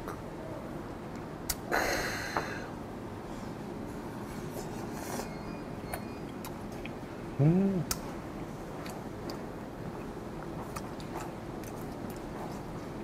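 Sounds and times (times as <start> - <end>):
quiet chewing: 8.7 - 12.9.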